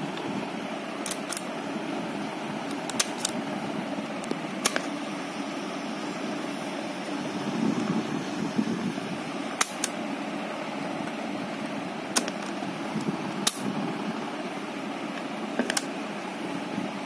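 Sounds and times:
low whirring hum: 0:00.0 - 0:17.0.

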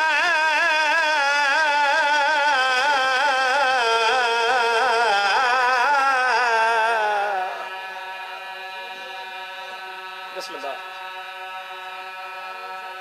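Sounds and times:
man chanting into microphone: 0:00.0 - 0:07.7
faint steady tones: 0:04.2 - 0:13.0.

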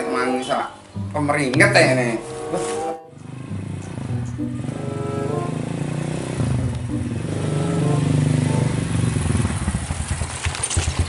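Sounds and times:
small motorcycle engine approaching: 0:03.1 - 0:11.0.

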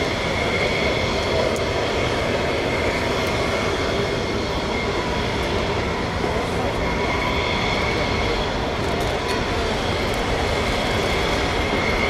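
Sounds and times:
high jet whine: 0:00.0 - 0:12.0
jet engines rumbling: 0:00.0 - 0:12.0.

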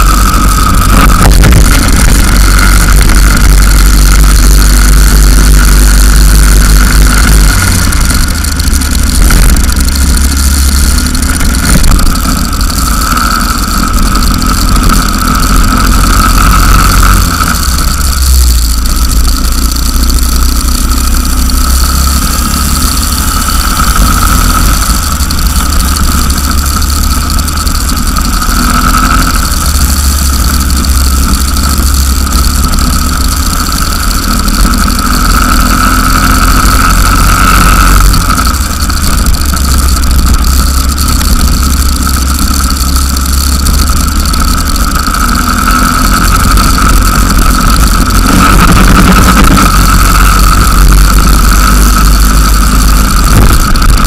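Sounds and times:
go-kart engine running: 0:00.0 - 0:54.0.

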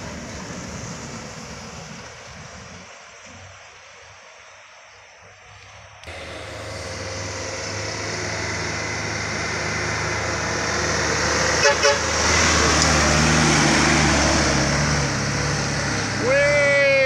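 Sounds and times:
truck passing by: 0:00.0 - 0:03.6, 0:05.6 - 0:17.0
truck horn toots: 0:11.4 - 0:12.5.

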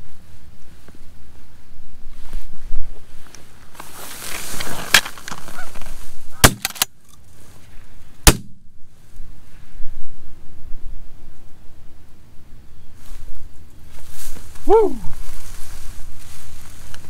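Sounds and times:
goose honking: 0:05.4 - 0:05.8
shotgun shots: 0:06.4 - 0:06.9, 0:08.3 - 0:08.6.

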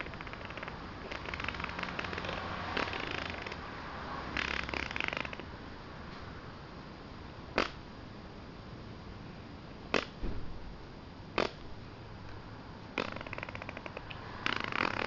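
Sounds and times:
buzzy sputtering fart noise: 0:00.0 - 0:03.6, 0:04.4 - 0:05.5, 0:13.0 - 0:15.0.

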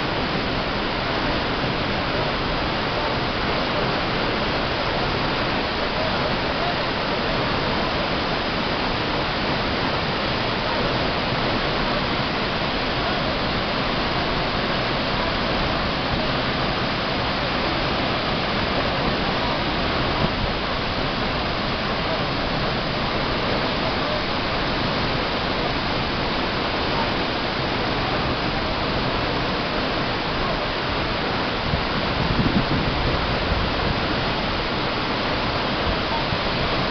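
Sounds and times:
waterfall rushing: 0:00.0 - 0:36.9.

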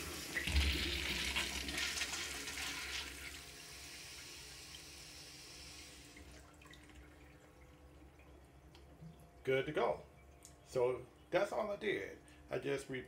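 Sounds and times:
water running into urinal: 0:00.0 - 0:09.4.

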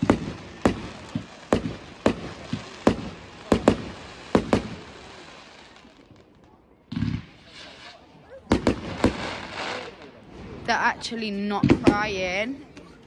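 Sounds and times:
fireworks hissing: 0:00.0 - 0:06.1, 0:07.0 - 0:10.9
fireworks bursting: 0:00.0 - 0:12.5.

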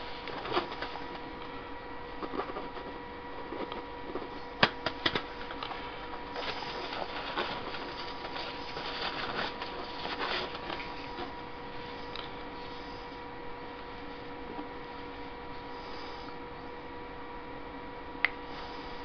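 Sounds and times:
steady electrical hum: 0:00.0 - 0:19.0
scratchy rustling of hands: 0:05.1 - 0:13.1.

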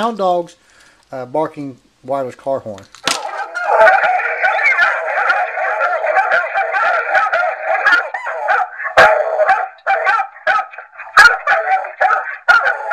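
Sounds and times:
horn playing dogs barking: 0:03.2 - 0:12.9.

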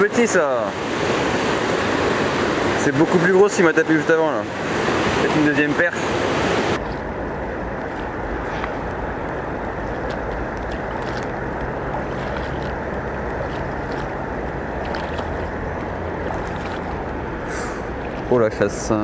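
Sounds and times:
river flowing: 0:00.0 - 0:19.0
wind buffeting microphone: 0:06.2 - 0:18.8.

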